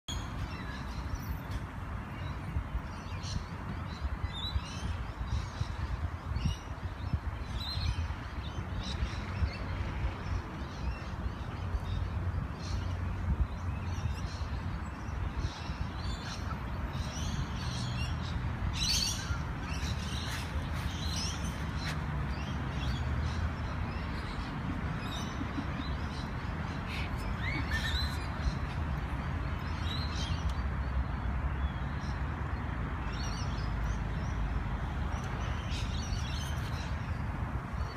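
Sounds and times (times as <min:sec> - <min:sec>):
birds chirping: 0:10.8 - 0:31.0.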